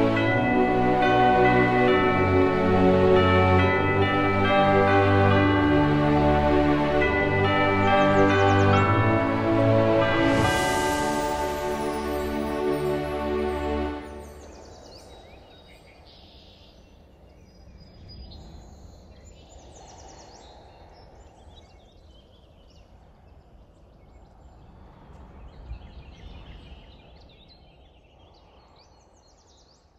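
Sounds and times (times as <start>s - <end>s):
steady low outdoor rush: 0.0s - 15.4s.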